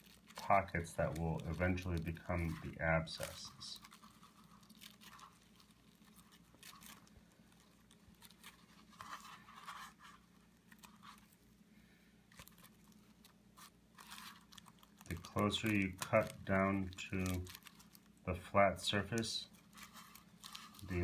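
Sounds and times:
scissors snipping plastic: 0.0s - 9.4s, 12.3s - 18.0s
plastic film crinkling: 0.0s - 21.0s.

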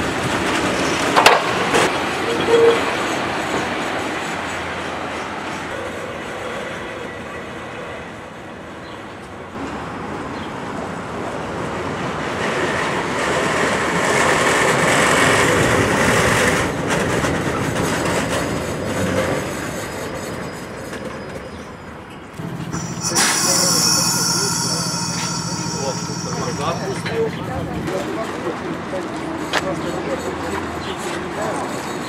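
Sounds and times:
tram wheels clattering over rails: 0.0s - 32.0s
steady high tone: 22.4s - 28.2s.

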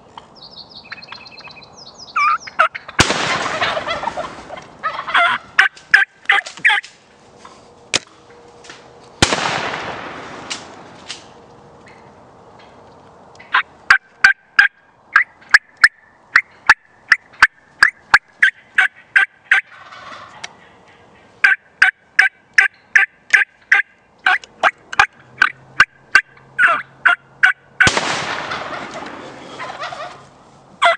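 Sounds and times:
quick sharp turkey calls: 2.2s - 6.9s, 28.5s - 30.9s
turkey gobbling: 2.2s - 6.9s, 13.4s - 30.9s.

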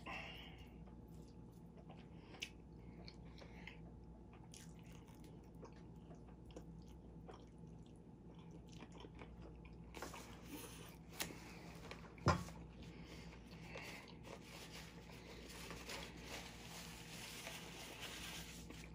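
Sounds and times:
faint chewing: 0.6s - 12.2s.

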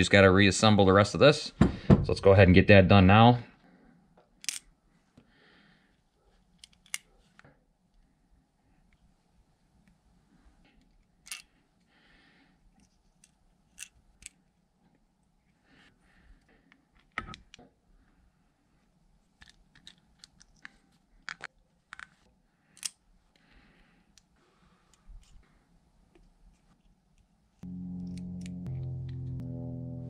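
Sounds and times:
small metal parts clicking: 4.4s - 4.7s, 11.2s - 11.5s.

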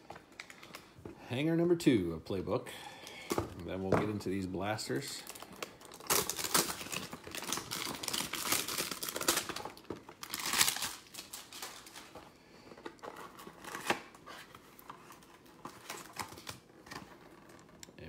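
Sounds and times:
foil pack crinkling and tearing: 4.9s - 12.2s.

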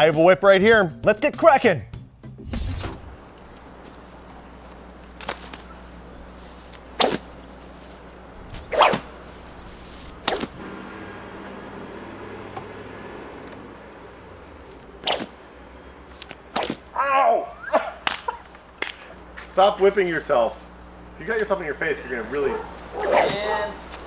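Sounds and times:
whip snapping: 2.5s - 3.2s, 7.0s - 7.3s, 8.5s - 9.2s, 10.0s - 10.6s, 15.0s - 15.3s, 16.2s - 16.9s, 18.0s - 19.0s, 23.0s - 24.0s.

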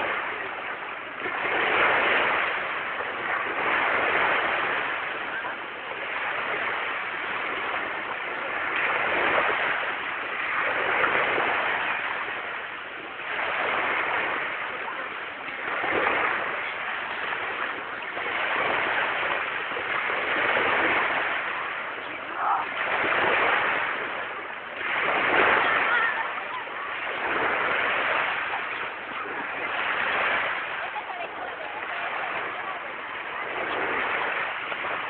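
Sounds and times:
small waves breaking on beach: 0.0s - 35.0s.

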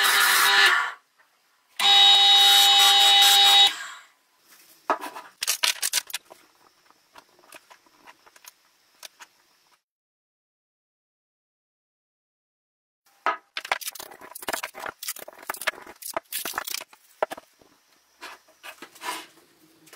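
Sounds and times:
turning tool scraping wood: 18.2s - 19.4s.

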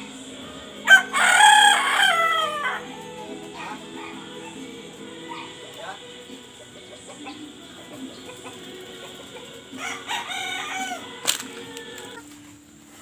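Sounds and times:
rooster crowing: 0.8s - 5.5s, 9.7s - 12.2s.

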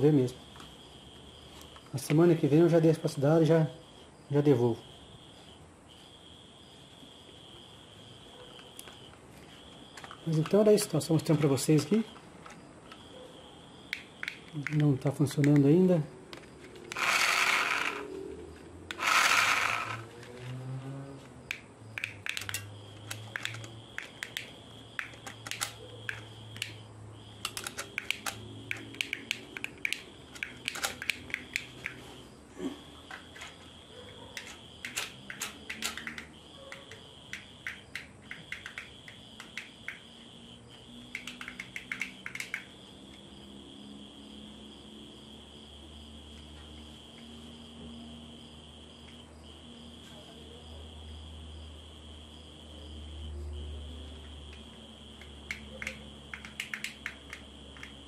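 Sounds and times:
cricket trilling: 0.0s - 58.0s
plastic clicks and taps: 13.9s - 15.7s, 21.5s - 26.8s, 27.4s - 32.0s, 34.3s - 40.0s, 41.1s - 42.7s, 55.2s - 58.0s.

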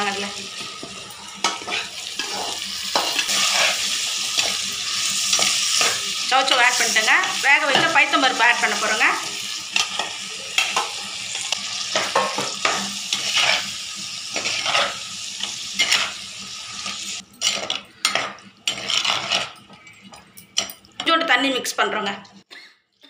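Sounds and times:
hot oil sizzling: 0.0s - 19.6s
metal ladle scraping clay pot: 17.4s - 20.1s.

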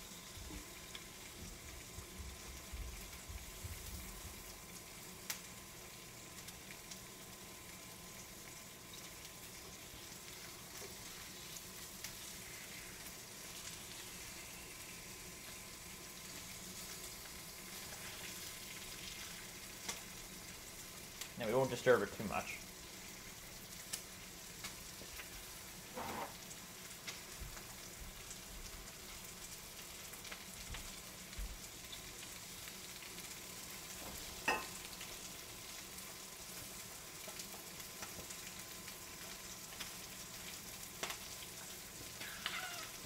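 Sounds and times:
chicken sizzling in a skillet: 0.0s - 43.0s.

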